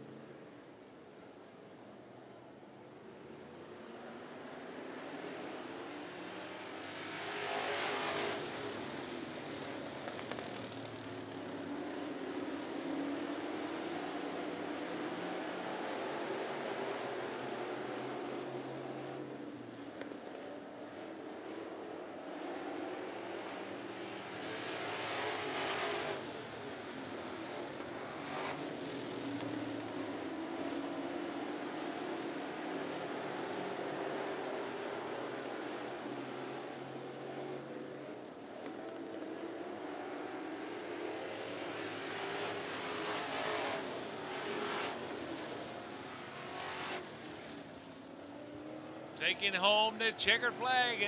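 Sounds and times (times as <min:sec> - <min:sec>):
race car engines: 0:00.0 - 0:51.0
race car passing by: 0:06.2 - 0:19.3, 0:22.6 - 0:29.8.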